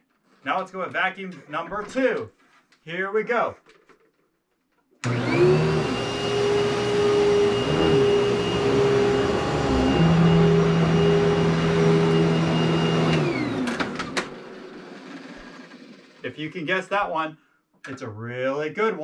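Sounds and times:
vacuum cleaner motor whining: 5.0s - 16.2s.

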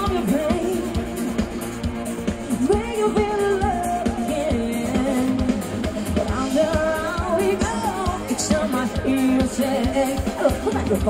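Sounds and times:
live band playing pop song: 0.0s - 11.0s
steady drum beat: 0.0s - 11.0s
person singing: 2.6s - 11.0s.

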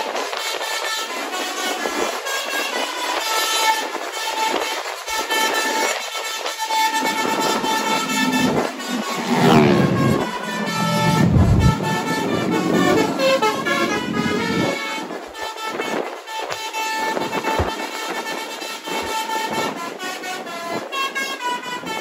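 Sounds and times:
musical bus horn: 0.4s - 22.0s
deep rumble: 6.9s - 14.8s.

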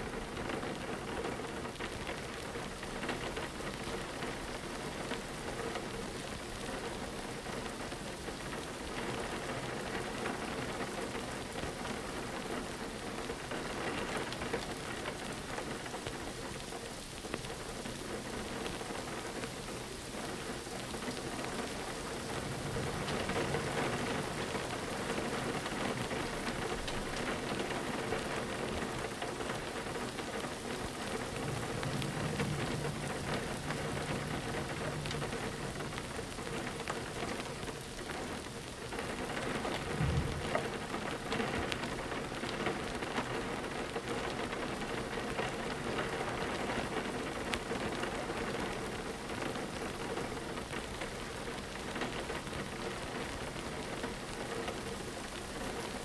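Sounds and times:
rain pattering on a window: 0.0s - 56.0s
low rumble: 31.3s - 36.1s, 39.8s - 40.7s.

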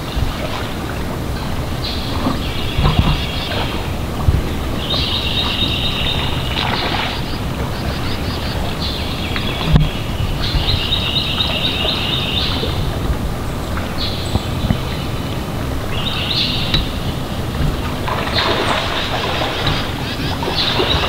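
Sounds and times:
wind noise rumble: 0.0s - 21.0s
songbird trilling: 1.3s - 21.0s.

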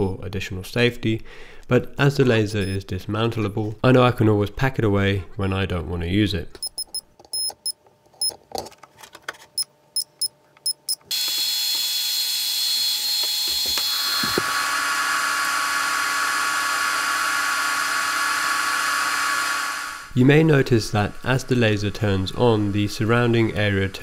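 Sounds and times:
cooling fans whirring: 6.1s - 24.0s.

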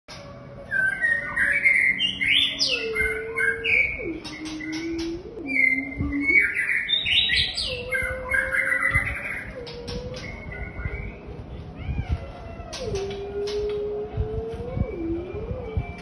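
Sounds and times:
bird singing whistled phrases: 0.7s - 11.2s
low tone stepping in pitch: 2.0s - 11.6s, 12.7s - 16.0s.

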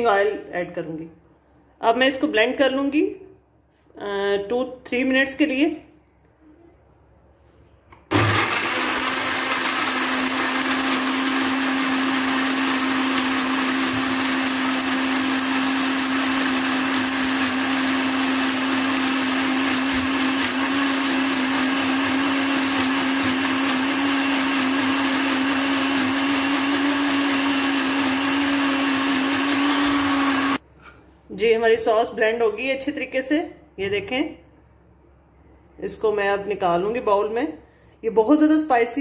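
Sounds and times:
electric blender running: 8.1s - 30.6s.

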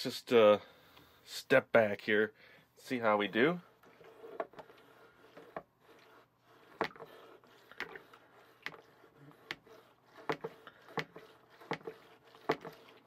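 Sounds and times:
plastic plunger knocking in pitcher: 9.4s - 12.9s.

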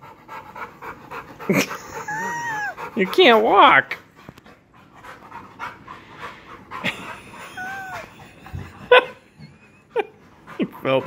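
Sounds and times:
dog panting: 0.0s - 11.0s.

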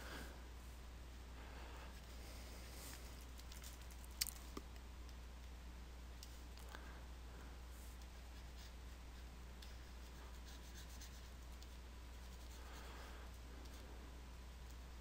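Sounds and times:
steady low hum: 0.0s - 15.0s
stylus scratching on graphics tablet: 8.2s - 11.4s.

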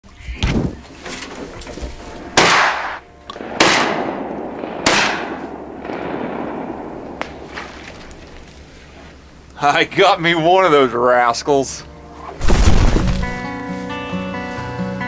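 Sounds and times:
shotgun shots with echo: 2.3s - 8.8s.

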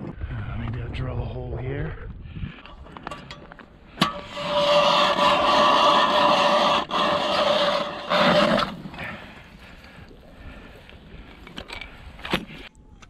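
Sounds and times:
ice auger grinding and whining: 4.0s - 8.9s.

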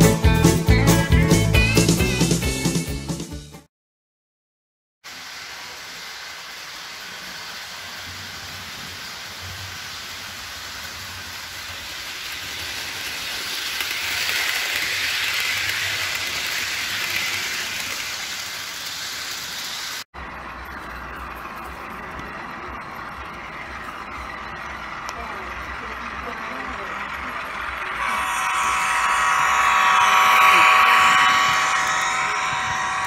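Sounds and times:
model train motor and wheels whirring: 5.1s - 33.0s
low hum: 20.2s - 33.0s.

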